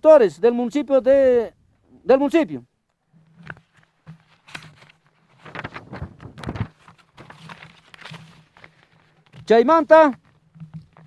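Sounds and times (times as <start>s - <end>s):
paper rustling: 3.2s - 11.0s.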